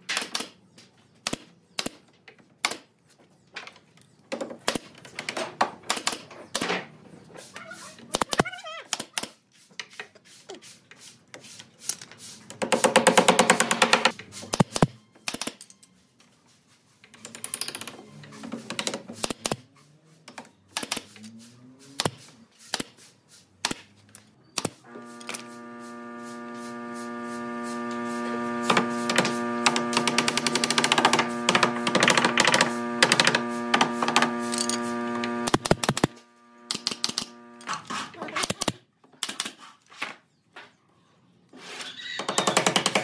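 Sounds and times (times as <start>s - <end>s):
steady tool hum: 24.8s - 37.9s.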